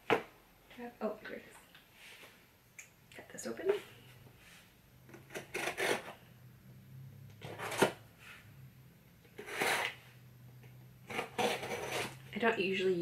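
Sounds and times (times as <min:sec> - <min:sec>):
craft knife cutting cardboard: 0:05.1 - 0:06.2, 0:07.4 - 0:08.0, 0:09.3 - 0:10.1, 0:11.0 - 0:12.3.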